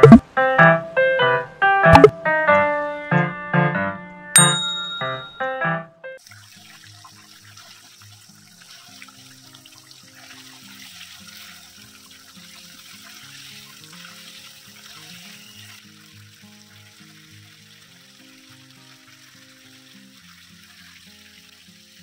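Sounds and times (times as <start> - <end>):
curry sizzling in a frying pan: 6.2 - 22.0.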